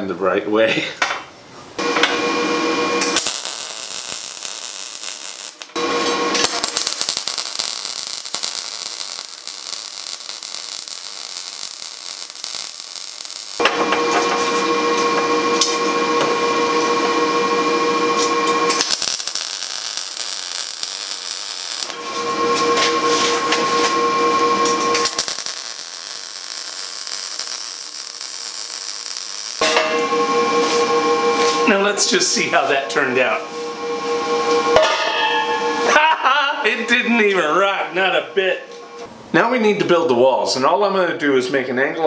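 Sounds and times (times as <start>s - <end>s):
welding arc sizzling and crackling: 1.8s - 32.3s
steady humming tone: 1.8s - 39.1s.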